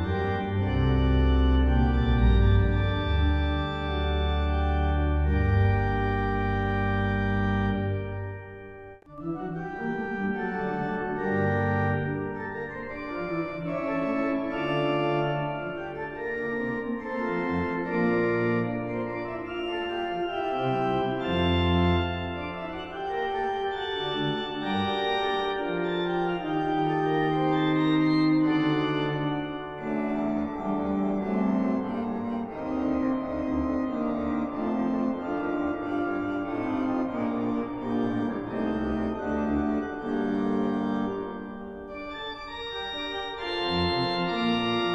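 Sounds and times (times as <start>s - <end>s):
church organ chords: 0.0s - 44.9s.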